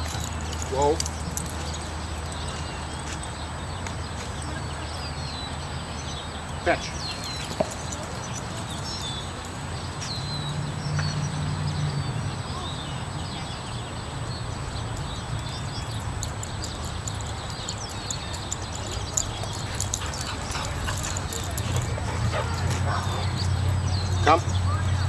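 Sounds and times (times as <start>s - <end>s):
bird chirps: 0.0s - 25.0s
dog trotting on dirt: 16.2s - 23.5s.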